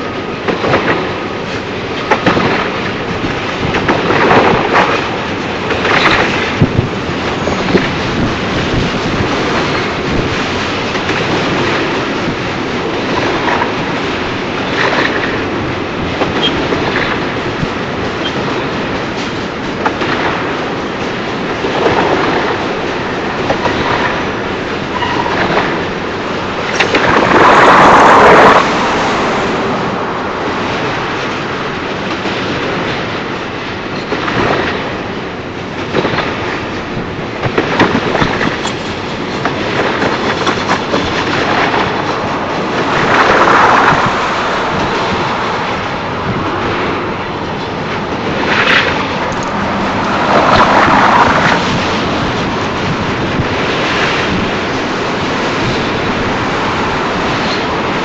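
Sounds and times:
freight train wheels rumbling: 0:00.0 - 0:58.0
rail clicks: 0:00.0 - 0:58.0
loud rushing noise: 0:25.7 - 0:32.9, 0:39.6 - 0:58.0.

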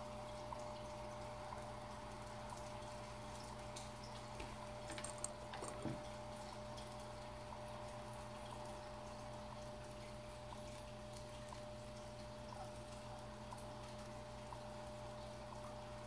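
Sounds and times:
thin constant whine: 0:00.0 - 0:16.0.

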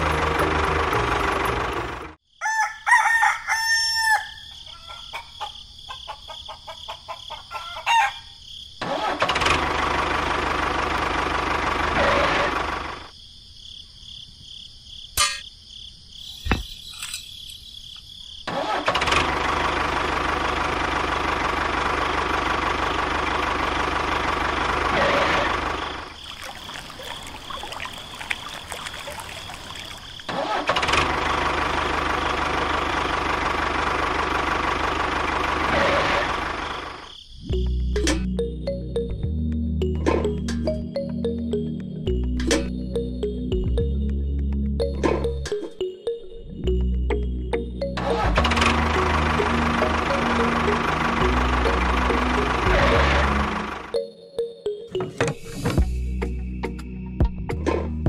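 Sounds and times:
tractor engine running: 0:00.0 - 0:02.2, 0:08.8 - 0:13.1, 0:18.5 - 0:45.6, 0:46.7 - 0:54.1
rooster crowing: 0:02.3 - 0:08.4.

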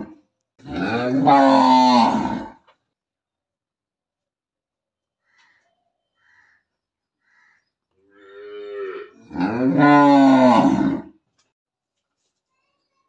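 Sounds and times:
cow mooing: 0:00.7 - 0:02.6, 0:08.1 - 0:11.1.

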